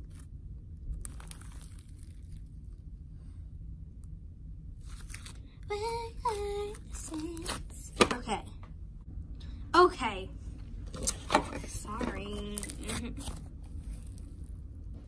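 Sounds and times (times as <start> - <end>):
slime squishing with crackles: 0.0 - 3.2, 4.8 - 8.4, 10.8 - 14.9.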